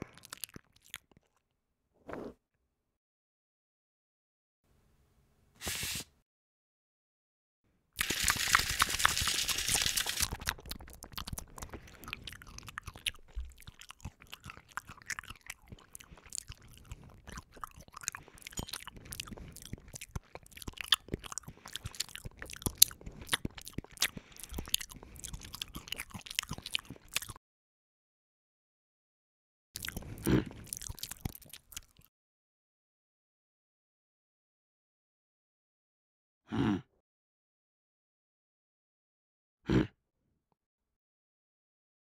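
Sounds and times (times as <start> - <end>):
chewing and crunching: 0.0 - 1.4, 8.0 - 27.4, 29.8 - 32.1.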